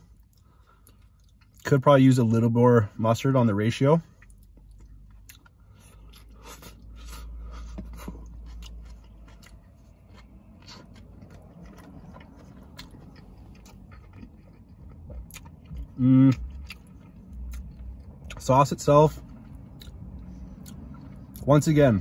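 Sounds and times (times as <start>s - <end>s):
chewing and biting: 4.1s - 18.5s, 19.1s - 21.5s.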